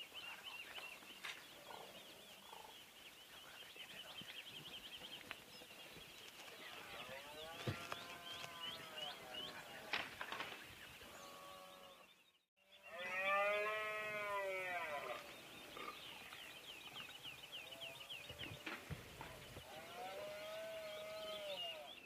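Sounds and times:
deer stag roaring: 0:19.7 - 0:21.9.

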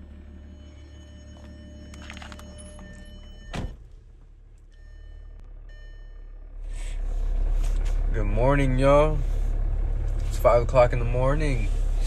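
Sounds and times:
car door slamming: 0:03.4 - 0:04.0.

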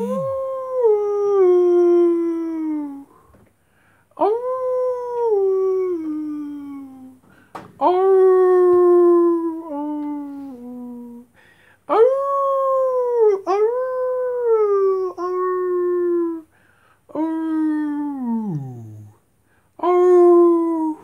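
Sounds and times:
long howls: 0:00.0 - 0:03.0.

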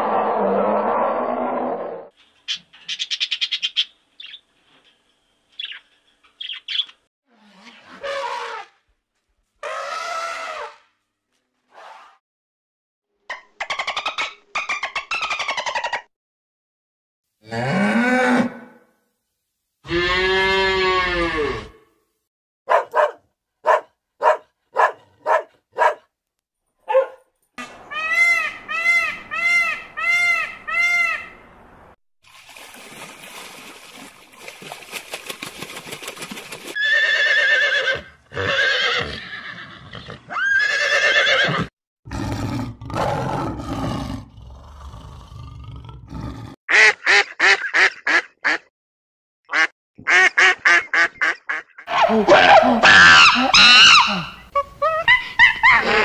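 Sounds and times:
dog barking: 0:22.7 - 0:26.1, 0:26.9 - 0:27.3, 0:51.9 - 0:53.4
horse whinnying: 0:36.8 - 0:41.7.

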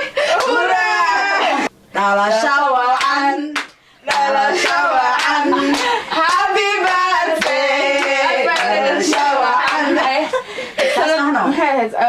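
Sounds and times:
group singing: 0:00.2 - 0:10.6
rhythmic hand clapping: 0:03.0 - 0:10.4.

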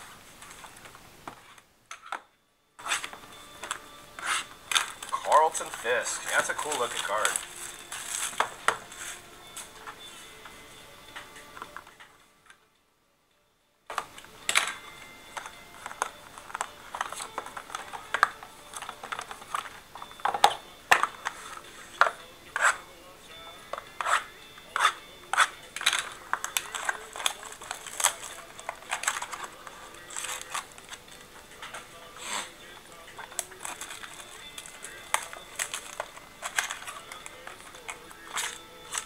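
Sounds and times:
cardboard boxes and packs handled: 0:02.8 - 0:12.2, 0:13.9 - 0:22.9, 0:23.5 - 0:39.0.

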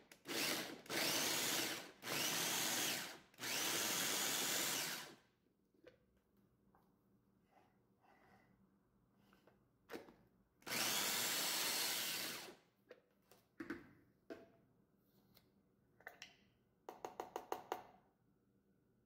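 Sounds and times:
electric food chopper running: 0:00.1 - 0:05.2, 0:10.6 - 0:12.5.

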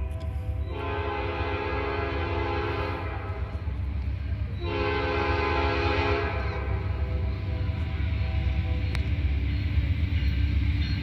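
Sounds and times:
locomotive horn blasts: 0:00.0 - 0:03.7, 0:04.4 - 0:09.2
train rumble: 0:00.0 - 0:11.0.

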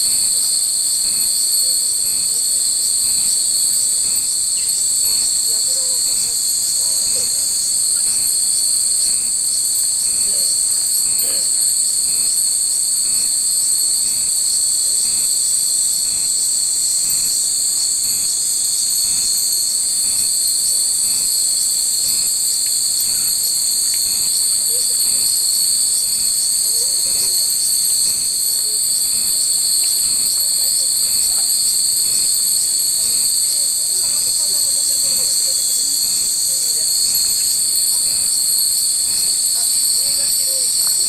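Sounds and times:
cicadas buzzing: 0:00.0 - 0:41.0.

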